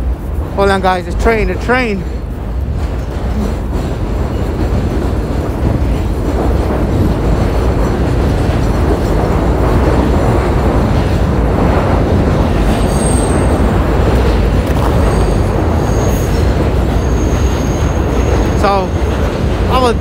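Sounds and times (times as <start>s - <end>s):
train rumbling past: 0.0s - 20.0s.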